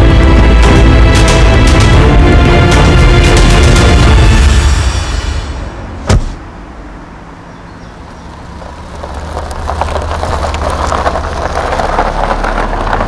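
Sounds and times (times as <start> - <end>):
car engine idling: 2.9 - 13.0
car door slamming: 6.0 - 6.5.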